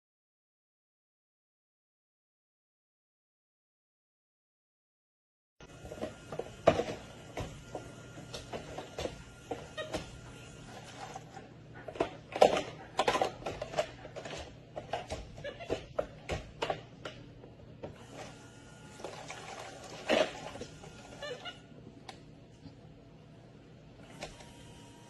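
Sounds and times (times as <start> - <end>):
objects clattering in a sink: 5.8 - 10.1, 10.7 - 17.2, 19.0 - 21.4.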